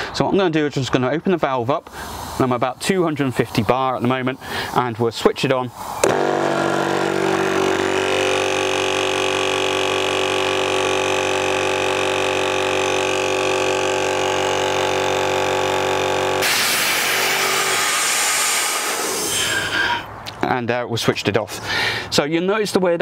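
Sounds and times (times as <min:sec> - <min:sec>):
air hissing from valve: 0:01.9 - 0:02.6, 0:05.7 - 0:20.1
air compressor droning: 0:05.7 - 0:20.1.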